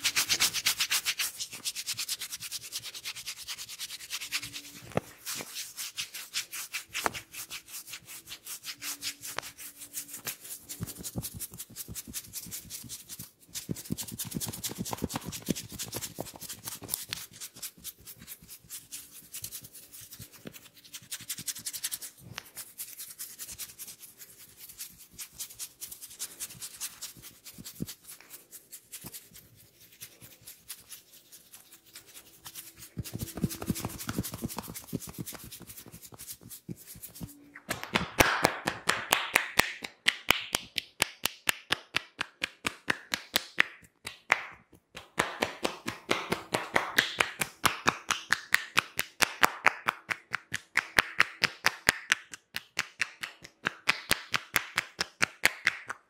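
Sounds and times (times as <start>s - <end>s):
fingers rubbing hair on scalp: 0.0s - 37.4s.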